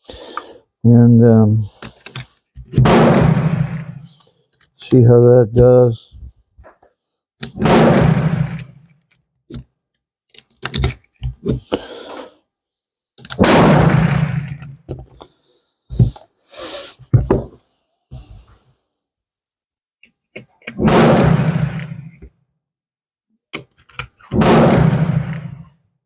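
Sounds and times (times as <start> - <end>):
pistol shots: 2.8 - 4.0, 7.6 - 8.7, 13.4 - 14.6, 20.8 - 22.1, 24.4 - 25.6.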